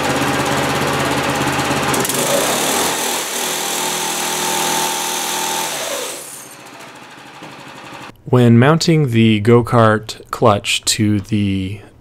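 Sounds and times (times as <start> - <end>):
go-kart engine running: 0.0 - 8.1.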